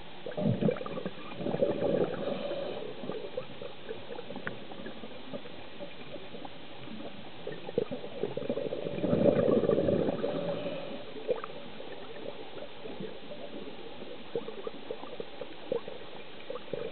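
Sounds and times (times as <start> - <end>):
underwater bubbles gurgling: 0.0 - 16.9
underwater hiss: 0.2 - 5.4, 7.0 - 16.9
faint clicks: 4.4 - 4.7, 11.3 - 13.1.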